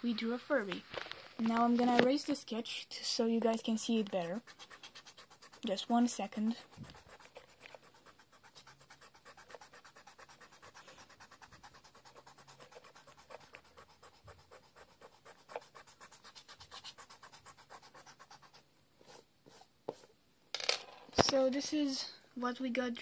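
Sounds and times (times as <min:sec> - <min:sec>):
eraser rubbing on paper: 0:03.2 - 0:20.1.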